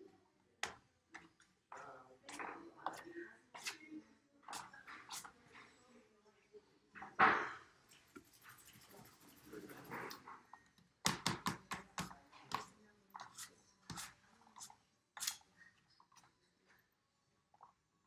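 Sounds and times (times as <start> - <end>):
hand smearing paint on canvas: 7.9 - 10.2.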